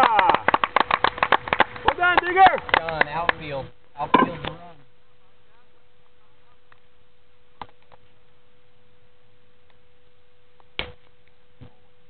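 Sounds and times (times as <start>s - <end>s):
faint high hum: 0.0s - 12.0s.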